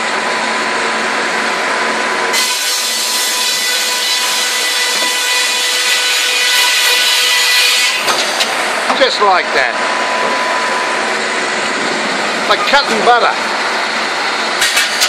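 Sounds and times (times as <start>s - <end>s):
circular saw blade whine: 2.3s - 8.5s
saw teeth cutting wood: 2.4s - 8.1s.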